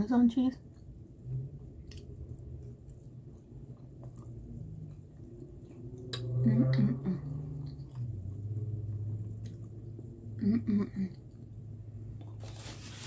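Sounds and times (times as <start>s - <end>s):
chewing and mouth sounds: 0.6s - 6.8s, 7.4s - 10.2s.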